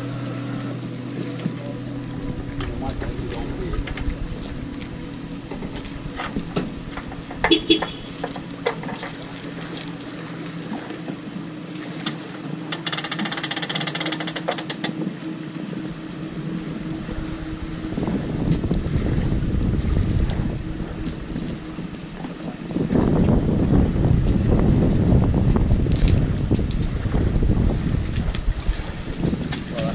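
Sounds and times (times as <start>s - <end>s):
wind rumbling on microphone: 0.0s - 11.4s, 14.9s - 29.9s
outboard motor idling: 0.0s - 29.9s
fast clicks: 12.7s - 14.9s.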